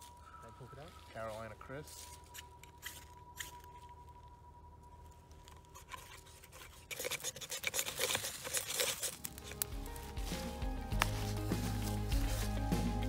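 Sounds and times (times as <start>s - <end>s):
ferro rod scraped with striker: 2.0s - 3.8s, 5.7s - 9.6s.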